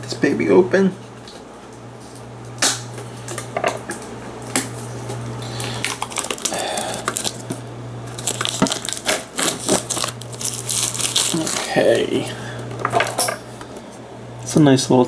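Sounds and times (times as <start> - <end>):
steady low hum: 0.0 - 15.0
metal tin crinkling and rustling: 5.8 - 7.5, 8.1 - 11.8.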